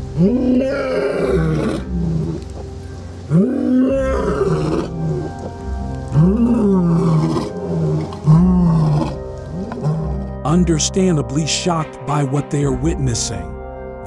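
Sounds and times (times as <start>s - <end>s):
lion roaring: 0.0s - 2.5s, 3.3s - 10.4s
background music: 0.0s - 14.0s.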